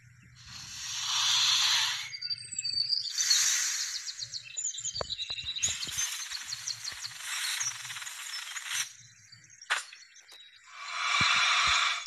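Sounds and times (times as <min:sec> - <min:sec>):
rapid high chirping: 0:00.4 - 0:09.0, 0:10.7 - 0:12.0.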